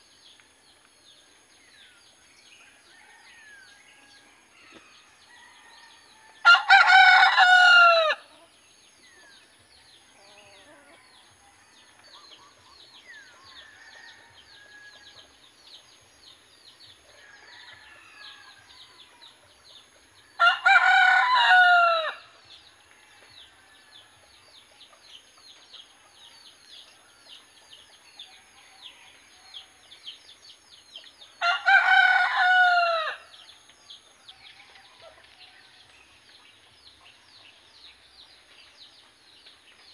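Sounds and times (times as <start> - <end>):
rooster crowing: 5.3 - 8.2, 20.4 - 22.2, 31.4 - 33.2.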